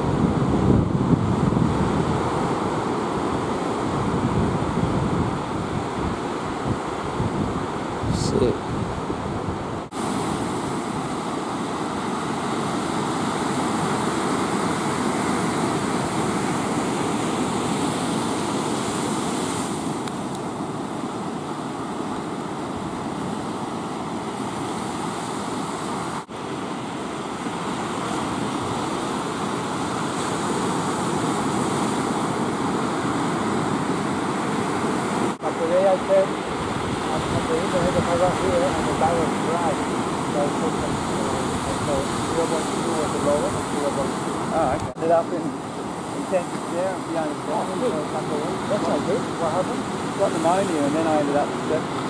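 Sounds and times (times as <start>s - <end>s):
ocean surf breaking: 0.0s - 52.0s.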